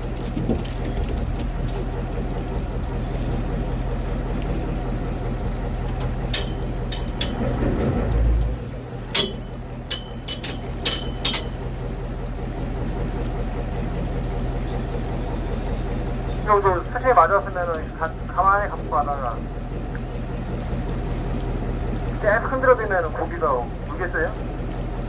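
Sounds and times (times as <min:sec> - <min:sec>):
boat engine humming: 0:00.0 - 0:25.0.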